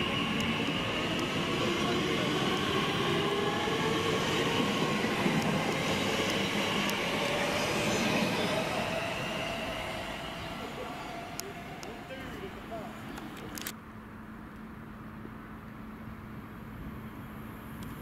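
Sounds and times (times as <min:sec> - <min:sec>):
train wheels rumbling on rails: 0:00.0 - 0:13.6.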